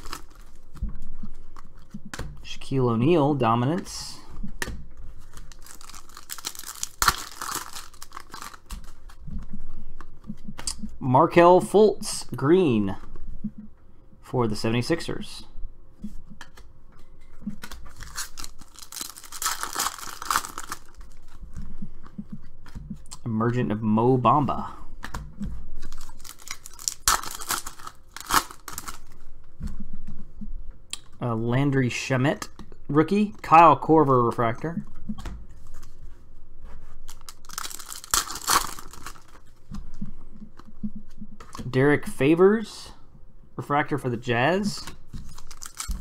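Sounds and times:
foil wrapper tearing: 0:00.0 - 0:00.6, 0:05.2 - 0:09.0, 0:17.6 - 0:21.4, 0:25.8 - 0:29.1, 0:37.1 - 0:39.5, 0:45.2 - 0:46.0
cards being handled: 0:00.0 - 0:02.4, 0:03.3 - 0:11.0, 0:16.0 - 0:23.0, 0:24.9 - 0:30.3, 0:35.2 - 0:41.8, 0:44.5 - 0:46.0.

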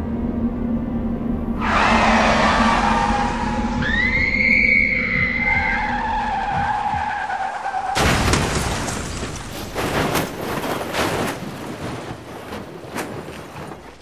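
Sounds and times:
car tyres squealing: 0:01.6 - 0:08.0
sharp crunching impacts: 0:06.4 - 0:14.0
loud crash: 0:08.0 - 0:12.4.

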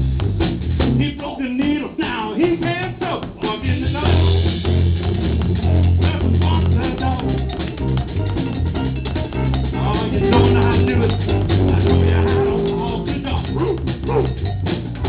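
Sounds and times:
drum kit: 0:00.0 - 0:15.0
electric guitar: 0:03.9 - 0:15.0.

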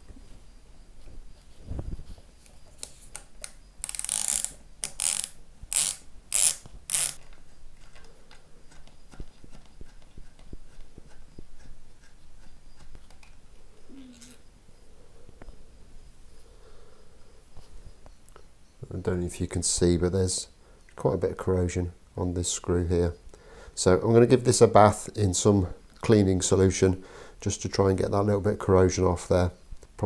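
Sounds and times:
rasping screwdriver ratchet: 0:03.8 - 0:07.2.

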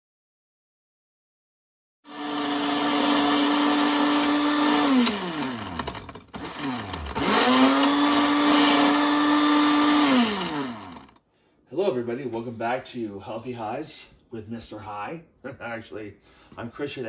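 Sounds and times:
electric blender motor running: 0:02.1 - 0:11.2.

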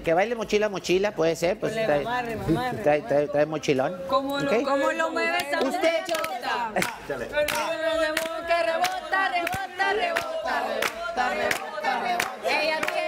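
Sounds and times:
voices cheering and chanting: 0:04.1 - 0:13.0
rhythmic clapping: 0:05.3 - 0:13.0.

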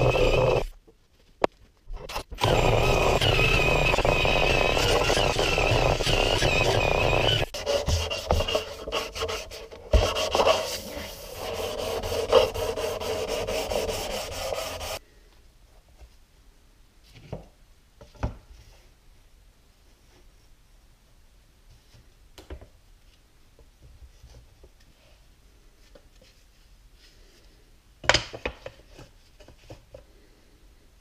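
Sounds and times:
angle grinder sanding wood: 0:00.0 - 0:00.7, 0:02.4 - 0:15.0
cloth rubbing on wood: 0:07.5 - 0:15.0.

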